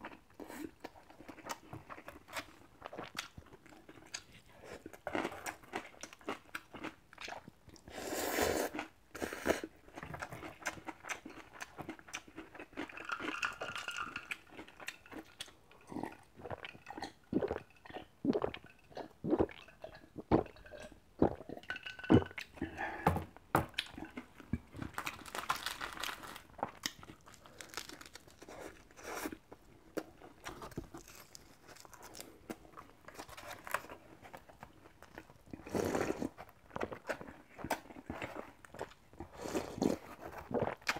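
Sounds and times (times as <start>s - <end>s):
gulping water: 15.2s - 23.0s
crisp chewing crunches: 23.8s - 40.9s.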